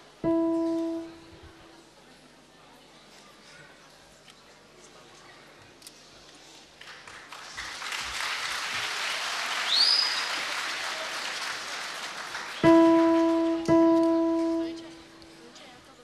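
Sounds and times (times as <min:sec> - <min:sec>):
electronic keyboard sustained note: 0:00.0 - 0:01.7, 0:12.6 - 0:15.3
audience applauding: 0:06.8 - 0:13.7.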